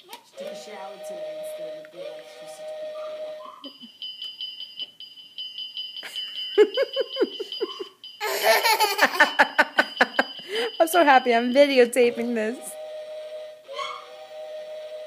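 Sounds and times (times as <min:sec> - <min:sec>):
electronic toy tune notes: 0:00.3 - 0:15.0
high-pitched electronic beeping: 0:10.0 - 0:13.0
child squealing with laughter: 0:13.8 - 0:14.1.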